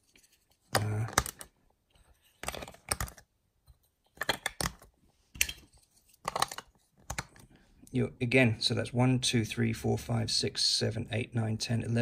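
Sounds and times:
plastic bricks clicking: 0.6 - 1.6, 2.4 - 7.5.

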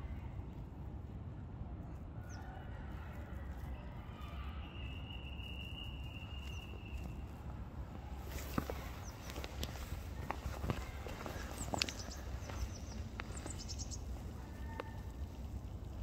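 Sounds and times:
faint bird chirps: 3.8 - 7.2
footsteps on dry ground: 6.3 - 16.0.

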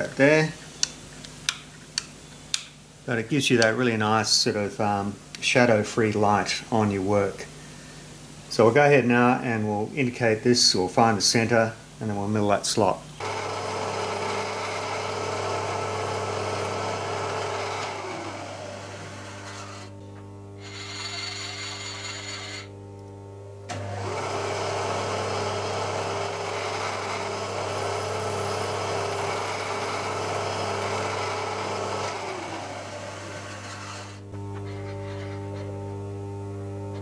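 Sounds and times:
milling machine spindle running: 13.2 - 19.9, 23.7 - 35.3.

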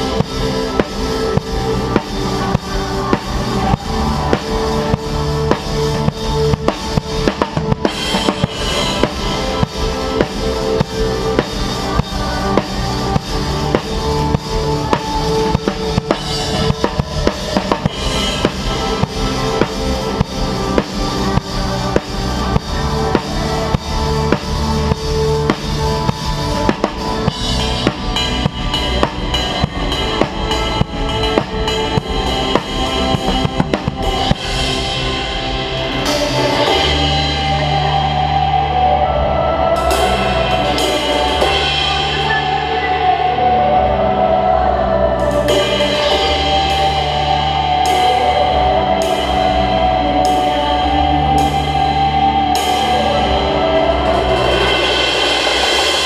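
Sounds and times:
drum kit beat: 0.0 - 39.0, 45.2 - 56.0
low bass notes and chords: 0.0 - 56.0
cymbal crashes: 52.6 - 56.0.

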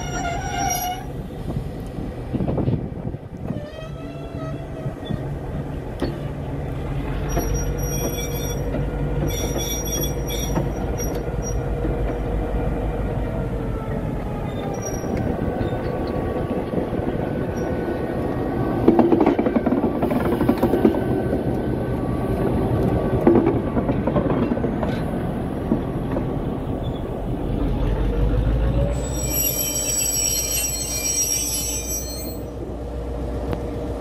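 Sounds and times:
high-pitched wheel squeal: 0.0 - 1.2, 7.3 - 11.6, 14.5 - 15.8, 28.9 - 32.6
diesel locomotive engine running: 0.0 - 34.0.

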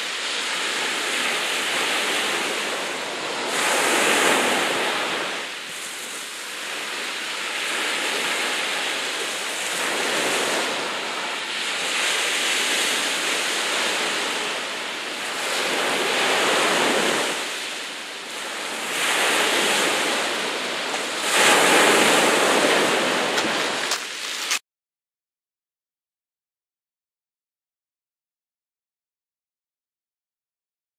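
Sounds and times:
choppy sea waves washing: 0.0 - 24.6.

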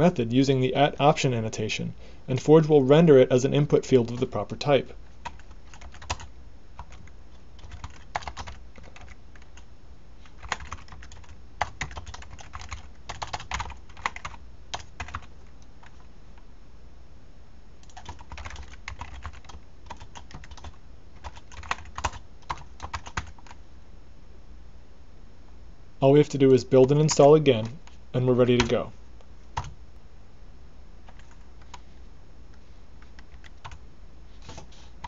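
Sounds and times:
typing on computer keyboard: 5.2 - 9.7, 10.4 - 16.0, 17.8 - 23.6, 31.1 - 31.8, 33.1 - 33.8.

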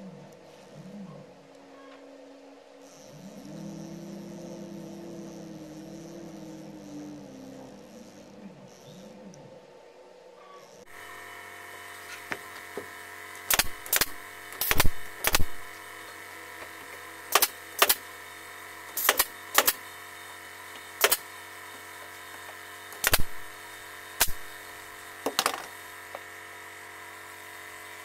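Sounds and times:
machine hum: 0.0 - 28.0
nail gun shots: 13.5 - 15.6, 17.3 - 18.0, 19.0 - 19.8, 21.0 - 21.2, 23.0 - 23.4, 24.2 - 24.4.

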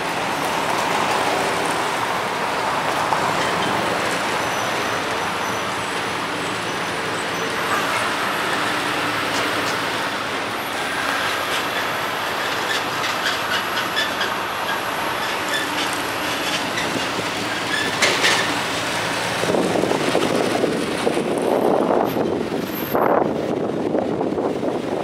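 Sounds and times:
rumble of tyres and engines: 0.0 - 25.0.

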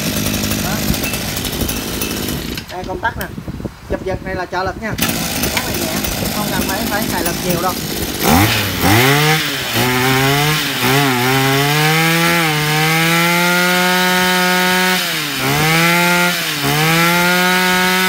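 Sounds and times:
brush cutter engine revving: 0.0 - 3.3, 4.9 - 18.0.

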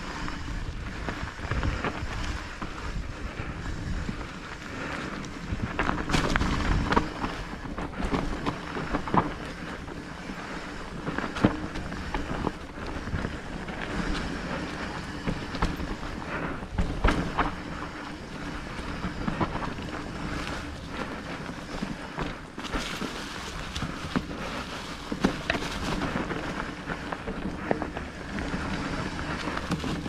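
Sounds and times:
bike knocks and rattles: 0.0 - 30.0
wind buffeting microphone: 0.0 - 30.0.

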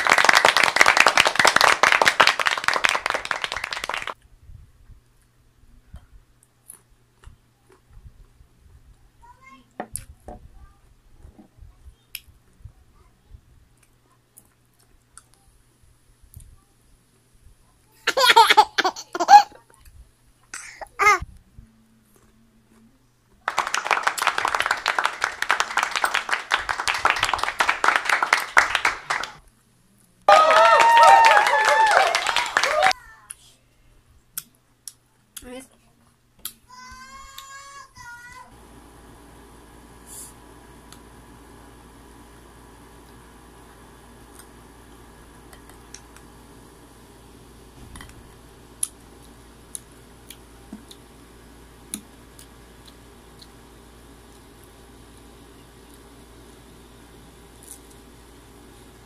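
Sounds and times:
mango being chewed: 52.4 - 53.6.

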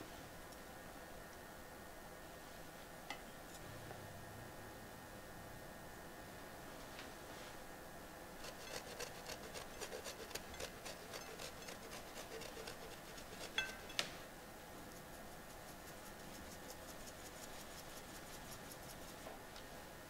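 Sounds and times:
cheese grater scraping: 8.4 - 14.0.

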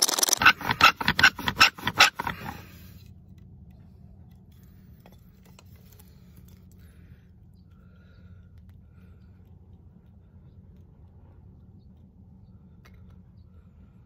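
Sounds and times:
bow drill scraping squeal: 0.0 - 2.7.

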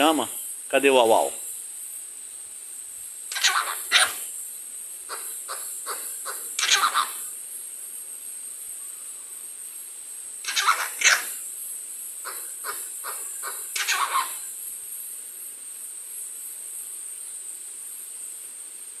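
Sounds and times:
parrot calling: 3.3 - 4.3, 5.1 - 7.4, 10.4 - 11.4, 12.2 - 14.5.

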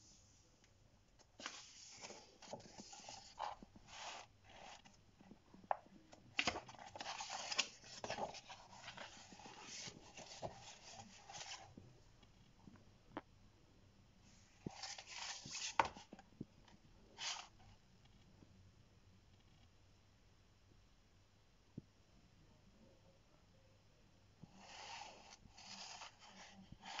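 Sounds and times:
magazine pages rustling: 1.4 - 5.0, 6.3 - 11.7, 14.7 - 16.2, 24.6 - 27.0.

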